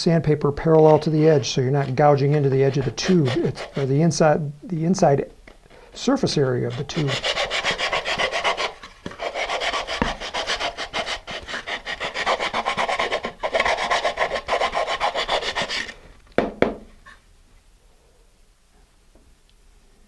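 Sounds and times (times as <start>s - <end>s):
sandpaper scraping inside cardboard tube: 0.9s - 4.0s, 6.0s - 16.0s.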